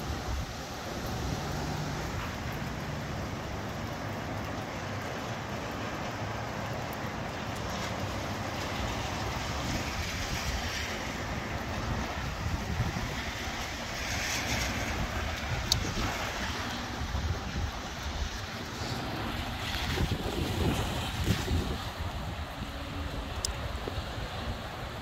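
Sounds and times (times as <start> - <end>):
rain: 0.0 - 25.0
wind rushing through trees: 0.0 - 25.0
wind buffeting microphone: 8.4 - 25.0.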